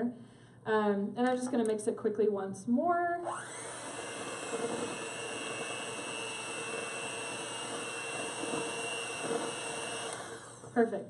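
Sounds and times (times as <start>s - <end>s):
electric hand mixer whirring: 3.2s - 10.8s.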